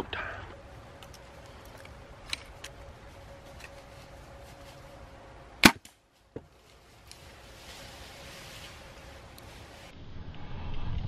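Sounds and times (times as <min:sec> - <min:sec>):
faint background noise: 0:00.0 - 0:11.0
sharp crack: 0:05.6 - 0:06.0.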